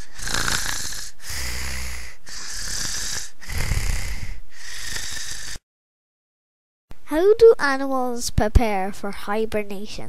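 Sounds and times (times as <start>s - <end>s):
hissing breaths: 0.0s - 5.6s
low snore: 0.0s - 5.6s.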